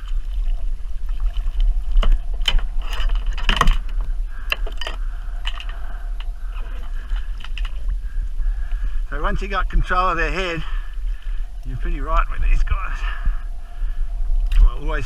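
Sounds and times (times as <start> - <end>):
wind and water rumble: 0.0 - 15.0
gear knocking against kayak: 1.9 - 7.9.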